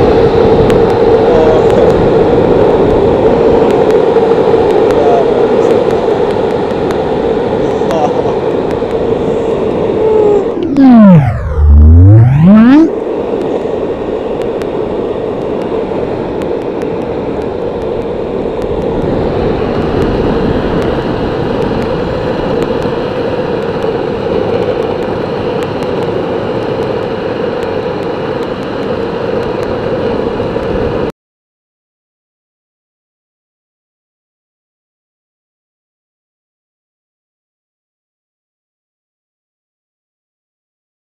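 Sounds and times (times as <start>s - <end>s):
skateboard wheels rolling on asphalt: 0.0s - 10.0s, 13.4s - 31.1s.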